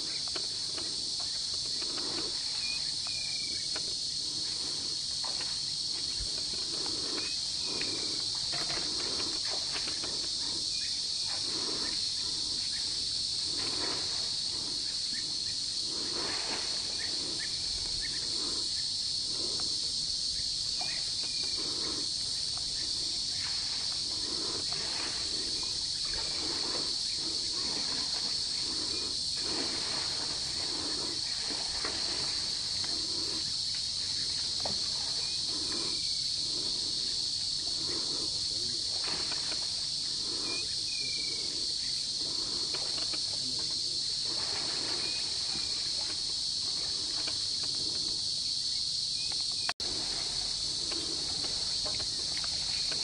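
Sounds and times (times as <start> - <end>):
high-pitched insect chorus: 0.0 - 53.0
water splashing and sloshing: 20.8 - 38.1, 38.8 - 40.6, 42.1 - 48.1.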